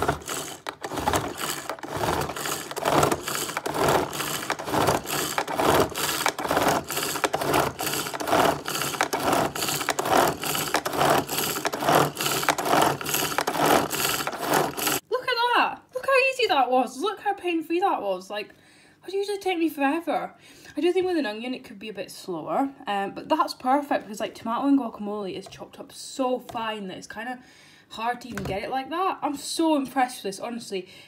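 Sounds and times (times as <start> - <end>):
pull-cord food chopper whirring: 0.0 - 15.0.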